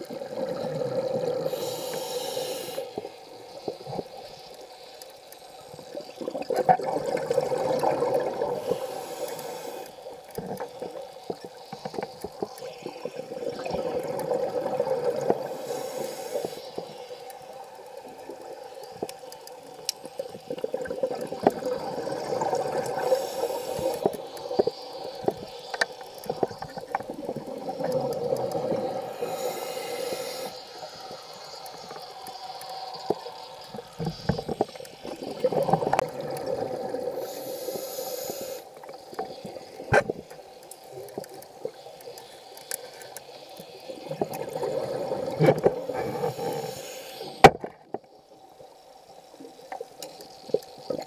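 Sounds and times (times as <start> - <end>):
regulator hissing inhale: 0.6 - 3.7, 8.4 - 11.9, 15.0 - 18.0, 22.5 - 26.8, 27.5 - 35.2, 36.9 - 39.6, 41.6 - 47.5
exhaled bubbles rushing: 6.0 - 8.8, 12.8 - 15.5, 20.6 - 23.0
small clicks: 8.6 - 51.0.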